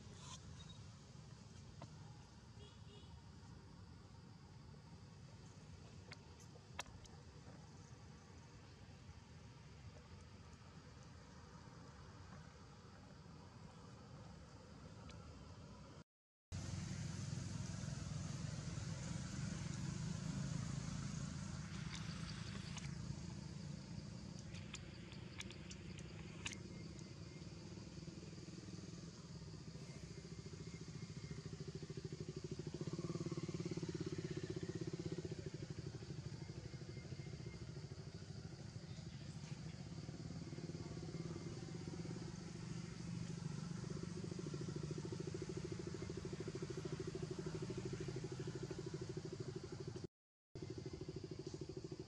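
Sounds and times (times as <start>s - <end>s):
engine droning: 16.6s - 52.0s
faint clicks: 24.4s - 27.1s.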